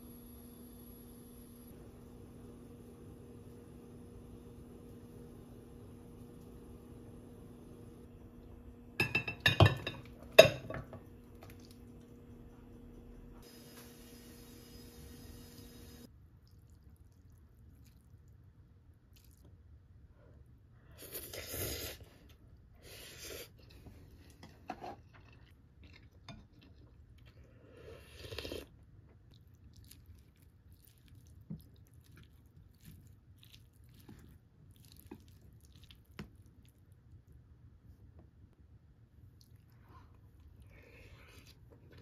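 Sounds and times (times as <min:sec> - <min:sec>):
chewing: 0:19.1 - 0:19.5, 0:25.0 - 0:36.9.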